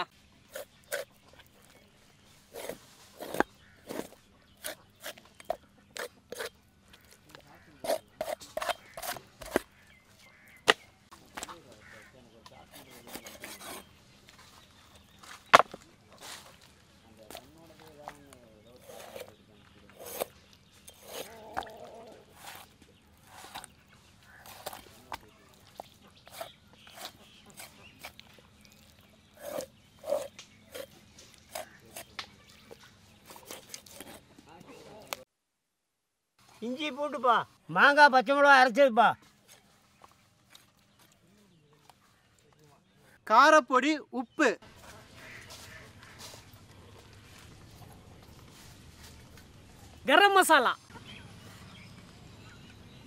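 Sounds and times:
blade rubbing on carcass: 0:02.4 - 0:06.6, 0:12.6 - 0:13.9, 0:18.6 - 0:28.2, 0:29.3 - 0:34.3
knife cutting on chopping block: 0:02.6 - 0:06.6, 0:07.8 - 0:09.6, 0:20.0 - 0:20.3, 0:20.9 - 0:21.7.

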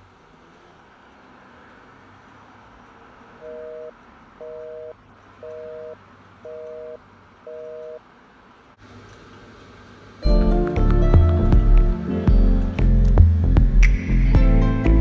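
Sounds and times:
telephone busy signal beeps: 0:03.4 - 0:08.0.

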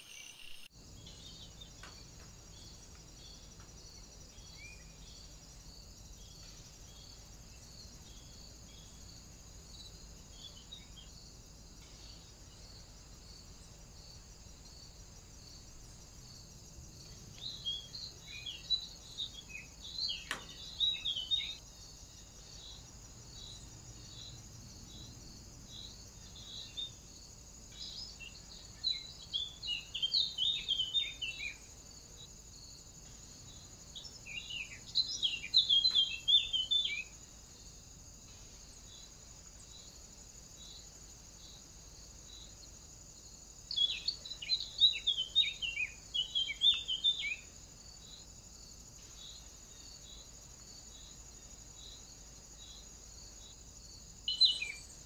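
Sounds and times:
pulsing insect trill: 0:00.0 - 0:55.0
birds chirping and singing: 0:17.4 - 0:21.6, 0:27.8 - 0:31.6, 0:34.0 - 0:37.1, 0:43.7 - 0:47.4.

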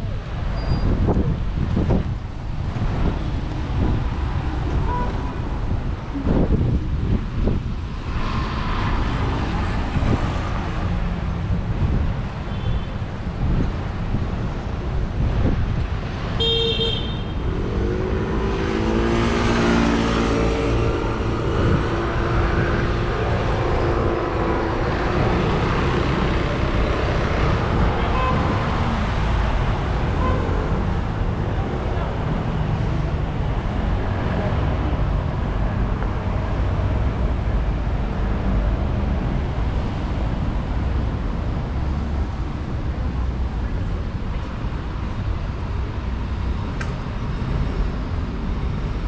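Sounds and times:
rumble of passing cars: 0:00.0 - 0:49.0
car horn blast: 0:16.4 - 0:17.3
passing vehicle engine: 0:17.4 - 0:48.2.

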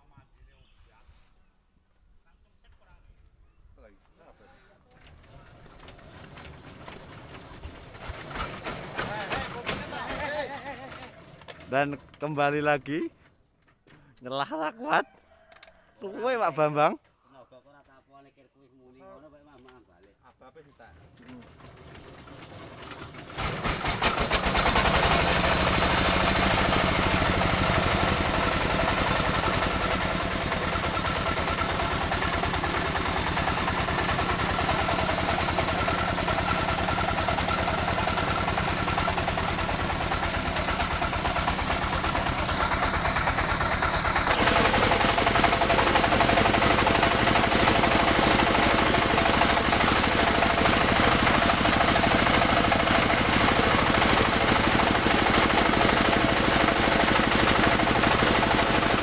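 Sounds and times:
sawmill engine running: 0:04.5 - 0:13.2, 0:20.9 - 0:59.0.

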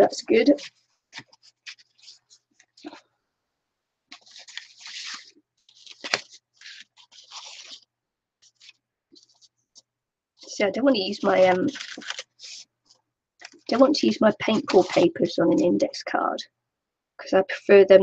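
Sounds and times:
paper rustling and crinkling: 0:00.0 - 0:03.1, 0:04.1 - 0:15.8
paper snapping: 0:05.9 - 0:06.8.

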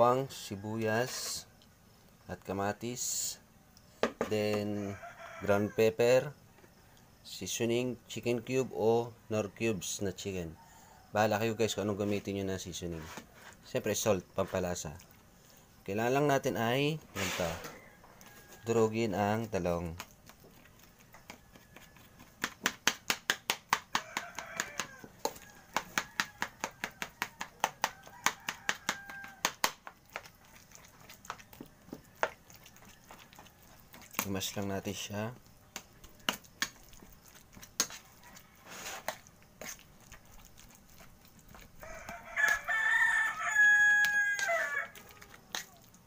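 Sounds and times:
rooster crowing: 0:04.7 - 0:06.0, 0:17.4 - 0:18.9, 0:21.0 - 0:22.2, 0:23.9 - 0:29.6, 0:37.9 - 0:39.2, 0:41.8 - 0:45.6.

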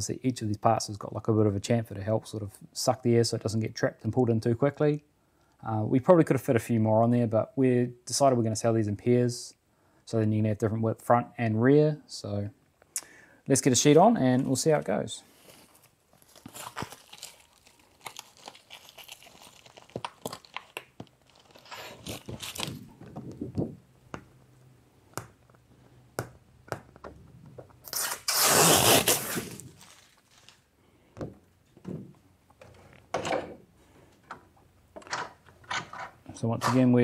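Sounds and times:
plastic sheet crinkling and scraping: 0:15.3 - 0:23.5, 0:27.9 - 0:30.7.

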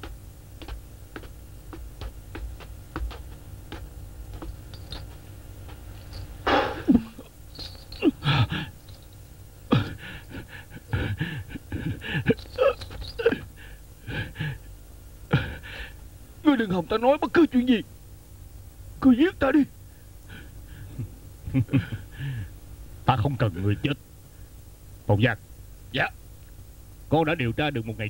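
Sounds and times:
sudden loud burst: 0:06.4 - 0:07.0
man gasping and groaning: 0:08.0 - 0:08.8, 0:09.7 - 0:14.6.

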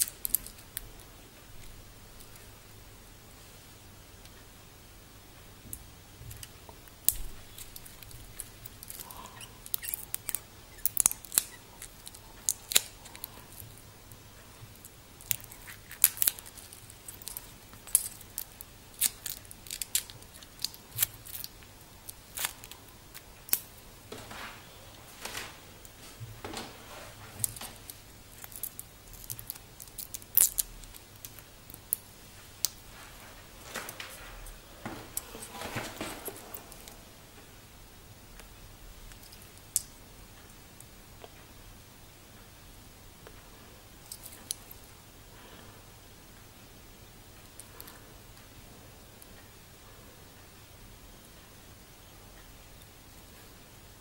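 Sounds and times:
plastic film peeling crinkly clicks: 0:06.3 - 0:13.7, 0:15.2 - 0:24.6, 0:27.4 - 0:32.0.

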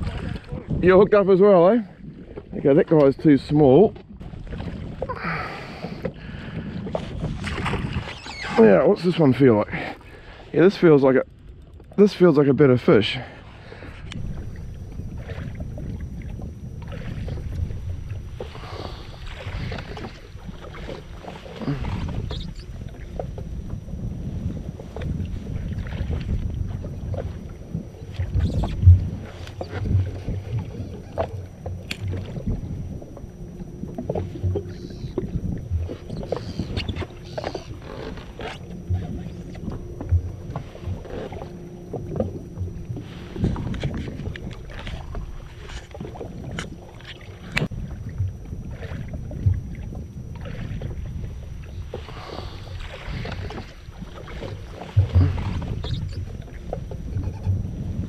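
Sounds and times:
water lapping against hull: 0:00.0 - 0:58.0
wind buffeting microphone: 0:00.0 - 0:58.0
low thumps: 0:21.8 - 0:46.8.

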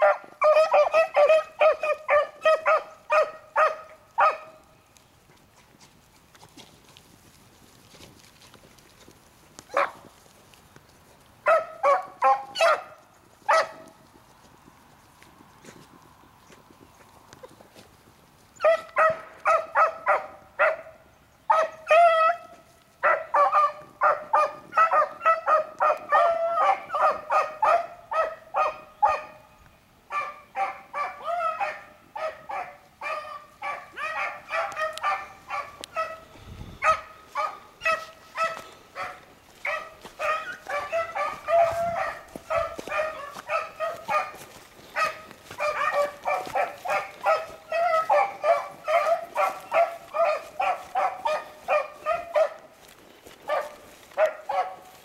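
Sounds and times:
dogs baying: 0:00.0 - 0:04.6, 0:11.4 - 0:14.0, 0:18.6 - 0:29.4, 0:30.1 - 0:55.0.

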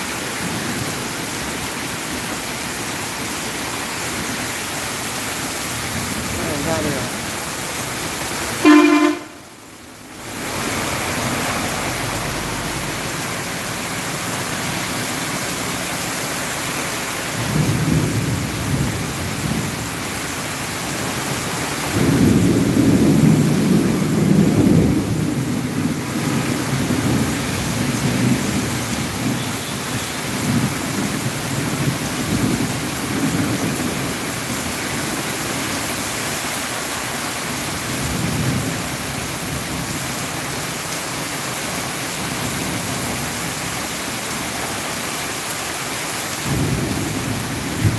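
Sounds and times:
heavy rain falling: 0:00.0 - 0:47.9
thunder rumbling: 0:17.4 - 0:20.1, 0:21.8 - 0:34.2, 0:46.4 - 0:47.9.

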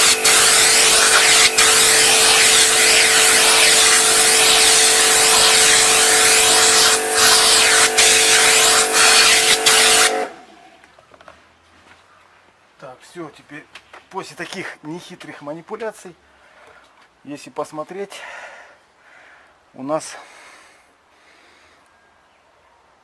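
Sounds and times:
pressure washer spray hiss: 0:00.0 - 0:10.4
pump motor hum: 0:00.0 - 0:10.5.

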